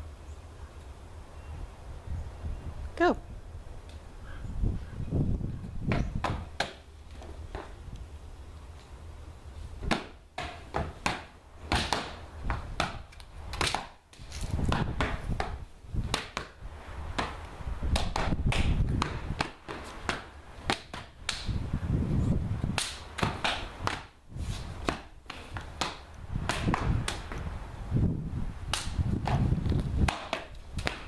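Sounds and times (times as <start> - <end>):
hand slaps and claps: 17.2 - 21.6, 22.7 - 24.1, 28.7 - 29.0, 30.0 - 31.0
feet stamping thuds: 28.7 - 31.0.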